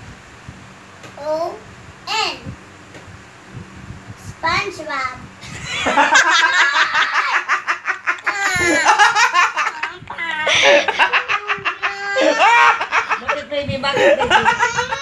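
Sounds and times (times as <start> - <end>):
child laughing heartily: 5.4 - 15.0.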